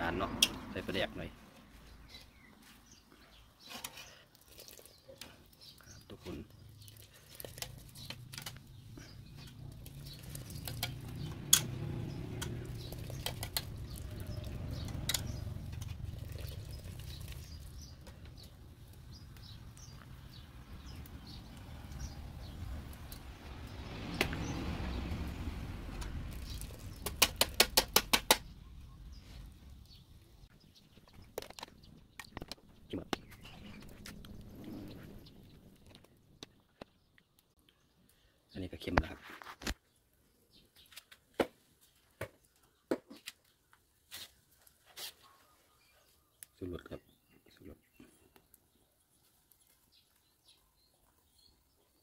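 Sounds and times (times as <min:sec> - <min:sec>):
utensils clicking against metal pot: 0:09.4 - 0:17.3
low rumble: 0:09.6 - 0:16.9, 0:33.4 - 0:36.0
sharp taps on pot: 0:27.0 - 0:28.4.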